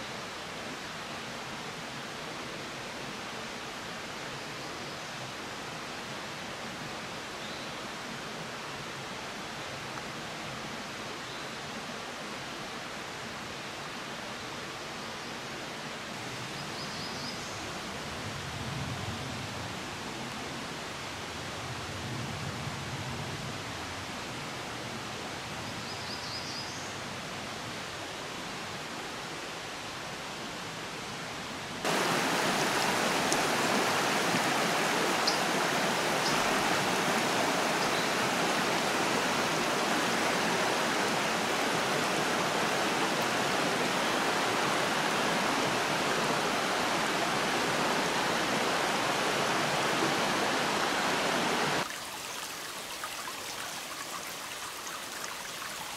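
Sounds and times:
outdoor hiss: 0:25.7 - 0:55.9
stream rushing over stones: 0:31.8 - 0:55.9.

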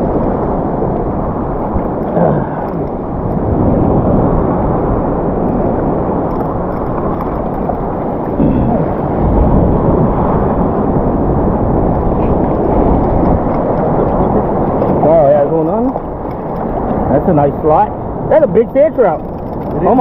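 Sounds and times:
muffled water sloshing rumble: 0:00.0 - 0:20.0.

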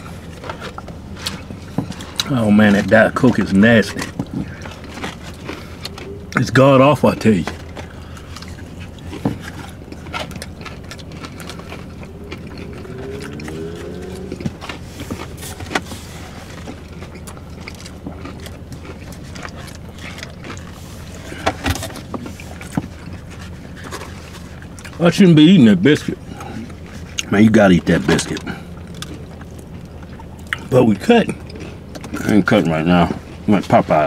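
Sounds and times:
takeout containers rustling: 0:00.0 - 0:13.6, 0:14.3 - 0:34.0
low cabin hum: 0:00.0 - 0:34.0.

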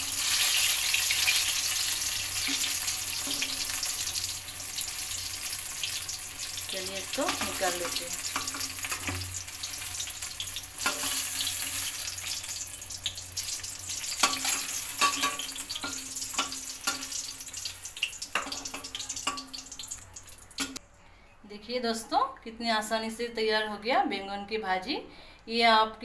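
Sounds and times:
slices sizzling in hot oil: 0:00.0 - 0:20.8
spoon clinking against pan: 0:14.2 - 0:17.1.

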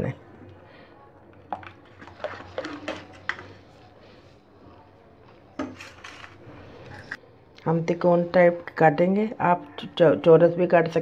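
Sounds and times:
ladle stirring batter in bowl: 0:01.2 - 0:07.2.

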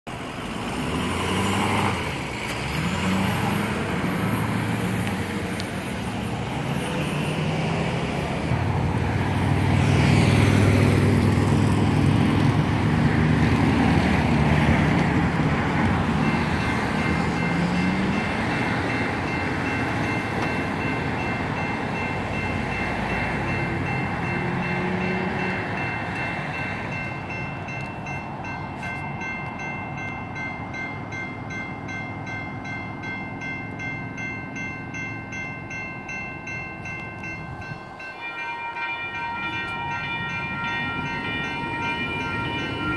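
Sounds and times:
road traffic passing: 0:00.1 - 0:42.9
electronic crossing bell ringing: 0:14.6 - 0:42.9.

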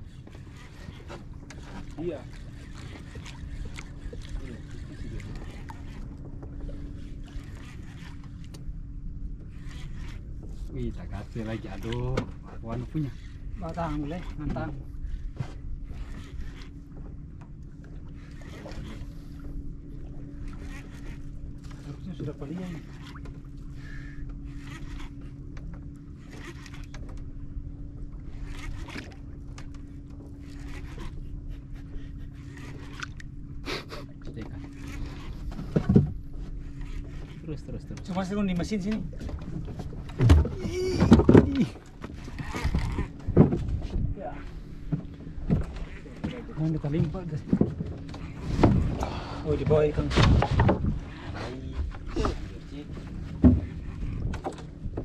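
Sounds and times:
boat motor hum: 0:00.0 - 0:55.0
fishing reel cranking: 0:09.5 - 0:10.3, 0:20.4 - 0:23.2, 0:23.8 - 0:25.4, 0:26.1 - 0:27.1, 0:42.2 - 0:43.2
wind rumble on microphone: 0:37.5 - 0:55.0.

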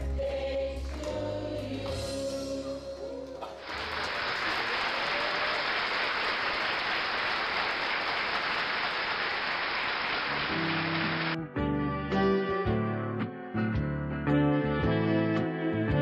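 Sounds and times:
crowd applauding: 0:03.4 - 0:11.4.

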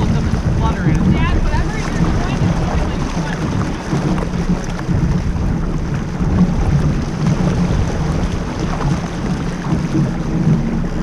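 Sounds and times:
water rushing along hull: 0:00.0 - 0:11.0
wind buffeting microphone: 0:00.0 - 0:11.0.

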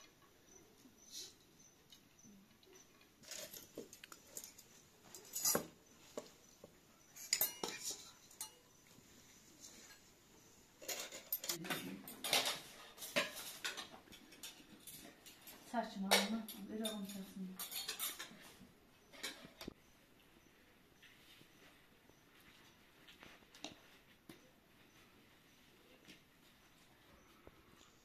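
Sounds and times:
metal spoon scraping a pot: 0:04.4 - 0:05.8, 0:07.2 - 0:08.7, 0:16.5 - 0:18.5.

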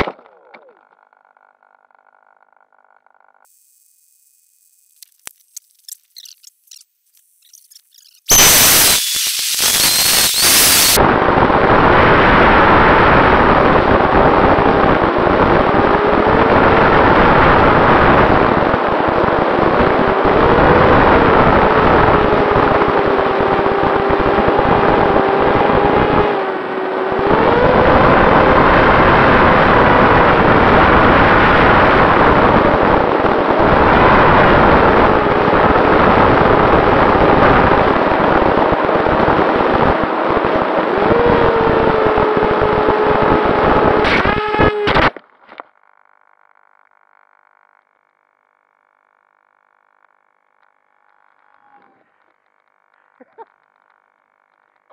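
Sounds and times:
electric motor and propeller buzzing: 0:03.4 - 0:11.0, 0:11.9 - 0:45.2
wind rush: 0:08.3 - 0:26.3, 0:27.2 - 0:45.1.

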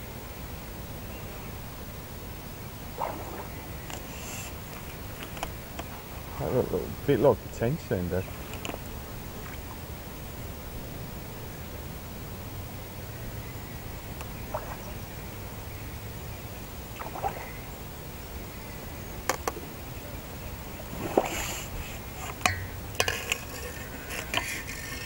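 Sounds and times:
fish splashing at surface: 0:03.0 - 0:07.0, 0:17.0 - 0:17.6, 0:20.8 - 0:25.0.

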